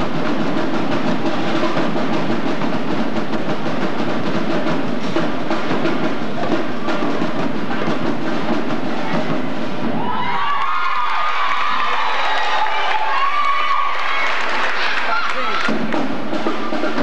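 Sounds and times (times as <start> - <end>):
drum-heavy music: 0.0 - 10.5, 14.6 - 17.0
crowd cheering: 9.0 - 17.0.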